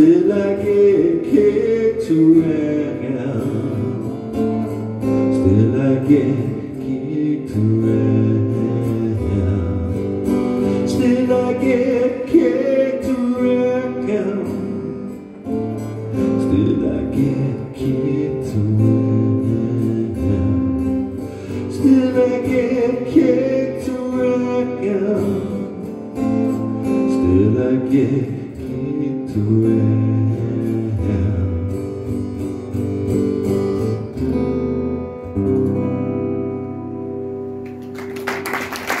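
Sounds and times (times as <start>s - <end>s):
acoustic guitar strumming: 0.0s - 38.8s
audience applause: 37.6s - 39.0s.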